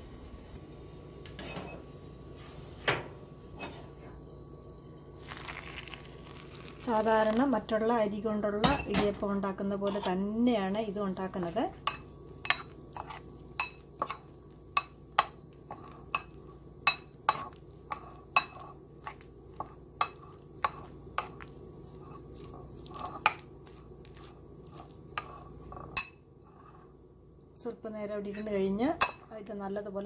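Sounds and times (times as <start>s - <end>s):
metal spoon clinking and scraping bowl: 9.7s - 10.3s, 11.4s - 26.9s, 28.2s - 29.3s.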